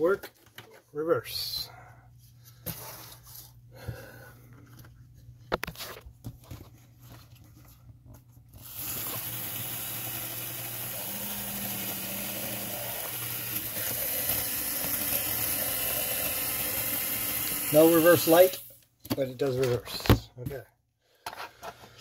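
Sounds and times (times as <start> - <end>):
electric motor whirring: 8.6 - 18.6.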